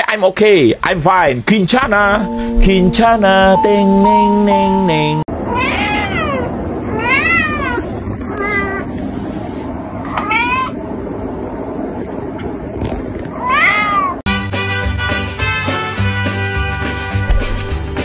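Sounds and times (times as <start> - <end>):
music with steady beat: 1.8 - 5.2, 14.5 - 18.0
cat meowing: 5.4 - 8.9, 10.1 - 10.8, 13.4 - 14.2.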